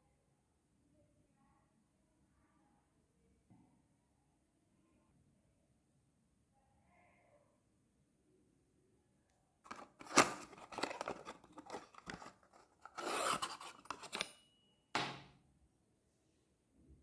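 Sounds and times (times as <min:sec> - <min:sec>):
cardboard rustling and scraping: 0:09.7 - 0:14.3.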